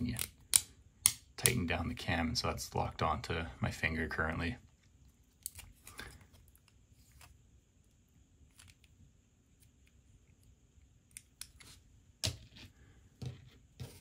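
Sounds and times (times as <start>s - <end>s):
plastic parts knocking on mat: 13.2s - 14.0s.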